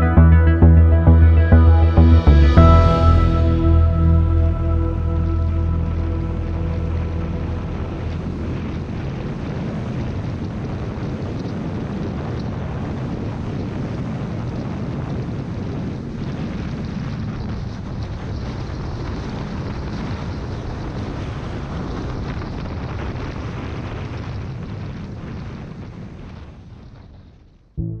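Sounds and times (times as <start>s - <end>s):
wind rush over microphone: 7.0s - 27.2s.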